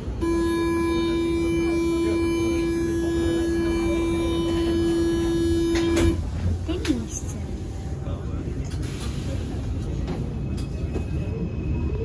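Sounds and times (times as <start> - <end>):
low hum of standing train: 0.0 - 12.0
door-closing warning buzz: 0.2 - 6.2.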